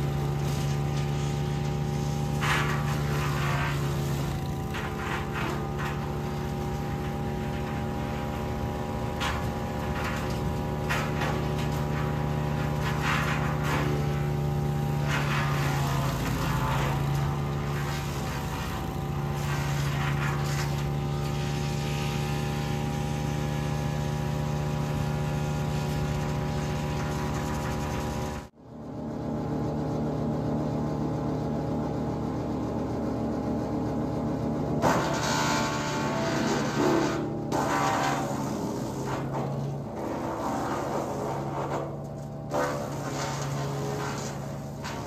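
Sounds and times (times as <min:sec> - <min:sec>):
wood chipper engine running: 0:00.0 - 0:45.0.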